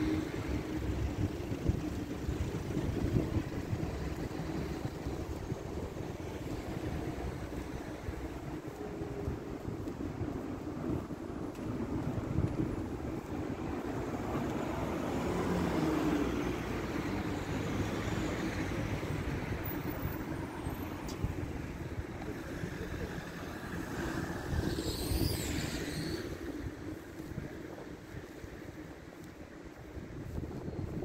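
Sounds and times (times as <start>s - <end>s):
vehicles driving past: 0.0s - 31.0s
brief high-pitched squeal: 24.7s - 26.4s.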